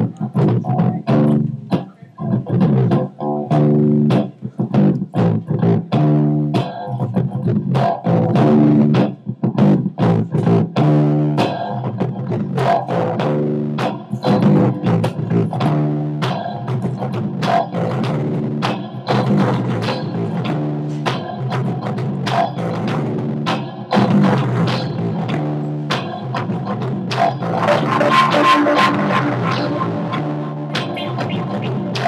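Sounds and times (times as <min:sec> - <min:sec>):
solo guitar playing: 0:00.0 - 0:09.3, 0:27.4 - 0:32.0.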